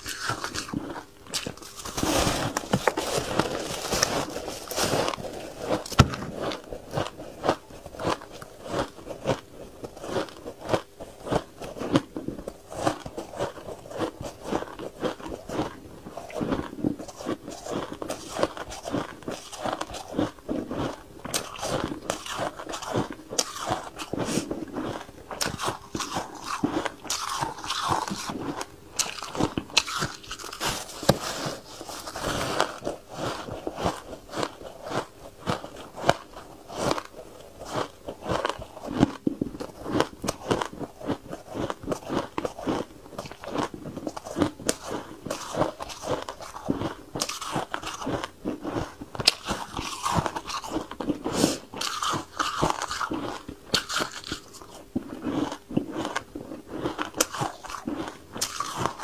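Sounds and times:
ice crunching while chewing: 0.0 - 59.0.

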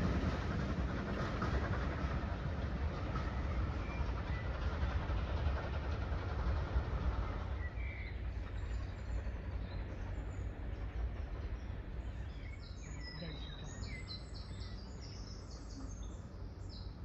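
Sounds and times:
train rumbling past: 0.0 - 17.0
birds chirping: 7.2 - 17.0.

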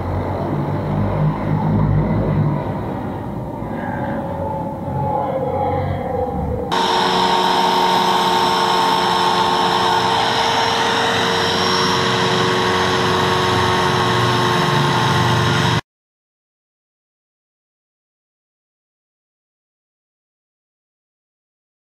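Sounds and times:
angle grinder sanding steel sheet: 6.7 - 15.8.

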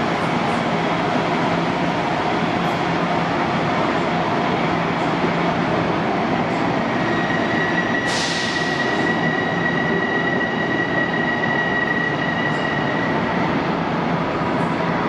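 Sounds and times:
train wheels rumbling on rail: 0.0 - 15.0
high wheel squeal: 7.0 - 13.1.

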